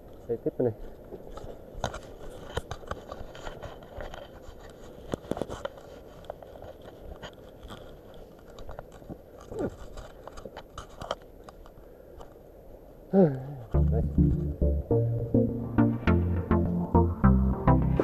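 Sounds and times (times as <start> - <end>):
clothing and gear rustling: 0.0 - 12.5.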